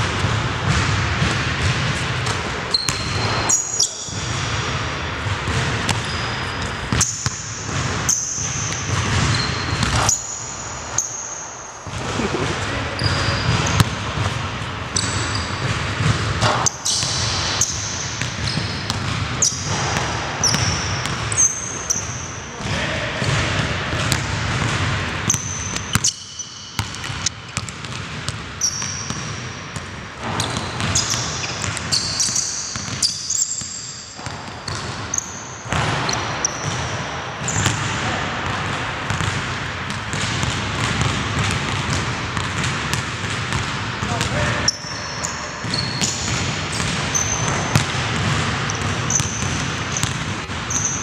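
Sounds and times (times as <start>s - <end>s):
sneakers squeaking on floor: 0.0s - 51.0s
basketball bouncing on hardwood: 0.2s - 3.4s, 5.2s - 6.1s, 37.4s - 44.3s, 45.6s - 50.6s.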